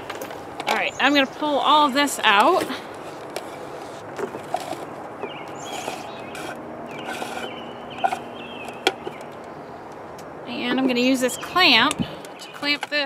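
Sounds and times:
cord pulled from reel: 0:05.6 - 0:08.2.

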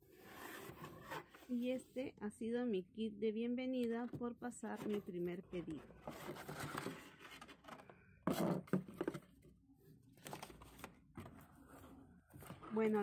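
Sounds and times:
cardboard packaging rustling: 0:06.0 - 0:09.4.

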